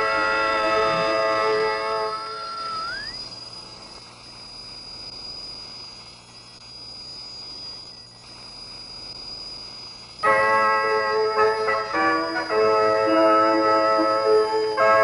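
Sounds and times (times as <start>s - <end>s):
high thin whistle: 0.0s - 3.5s
radio static hiss: 0.0s - 14.8s
radio interval signal melody: 0.0s - 15.0s.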